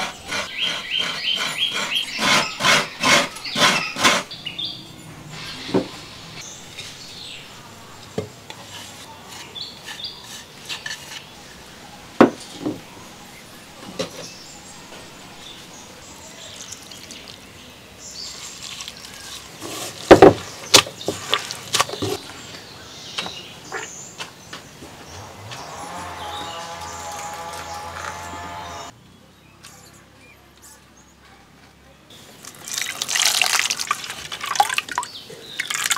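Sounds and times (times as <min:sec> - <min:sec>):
hands working grated coconut: 0:00.0 - 0:04.4, 0:08.6 - 0:11.6, 0:18.2 - 0:20.1
water pouring: 0:16.5 - 0:17.5, 0:18.3 - 0:19.6, 0:32.3 - 0:35.9.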